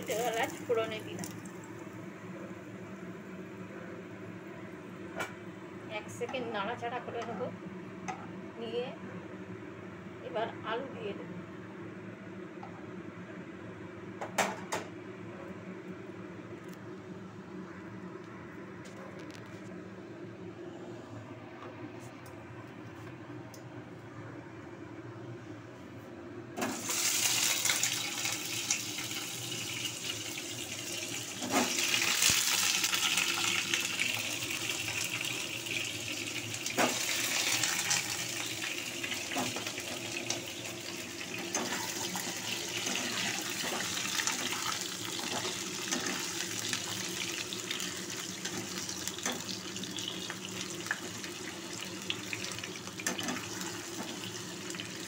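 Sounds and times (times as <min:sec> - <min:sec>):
hot oil sizzling: 0:00.0 - 0:02.0, 0:26.6 - 0:55.0.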